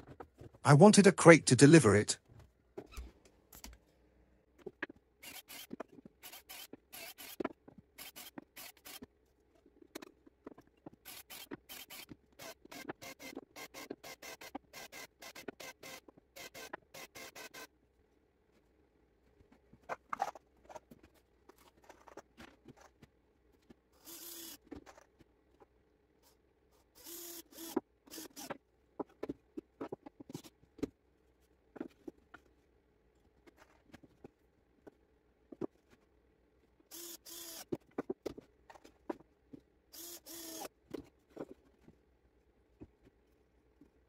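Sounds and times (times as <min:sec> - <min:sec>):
cordless drill driving screws: 0:05.2 - 0:07.4, 0:11.1 - 0:17.6, 0:24.0 - 0:24.6, 0:27.0 - 0:28.6, 0:36.9 - 0:37.7, 0:40.0 - 0:40.7.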